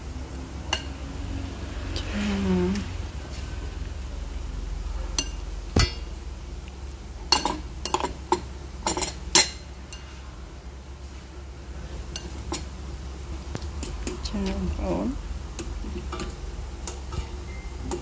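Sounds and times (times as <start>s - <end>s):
tongs clinking on ceramic bowl: 7.3s - 10.2s.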